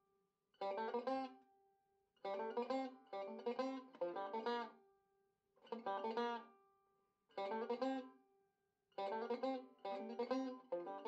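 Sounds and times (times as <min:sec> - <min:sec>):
plucked-string tune: 0:02.3 - 0:04.7, 0:09.0 - 0:11.0.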